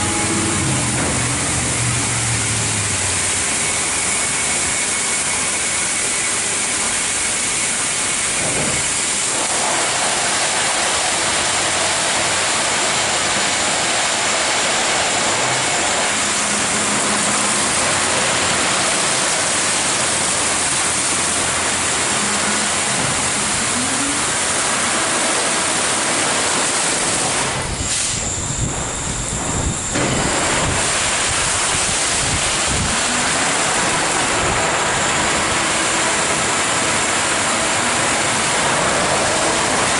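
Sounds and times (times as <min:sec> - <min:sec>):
machine hum: 0:00.0 - 0:39.9
water spraying: 0:00.0 - 0:39.9
rotating car wash brushes: 0:07.9 - 0:28.0.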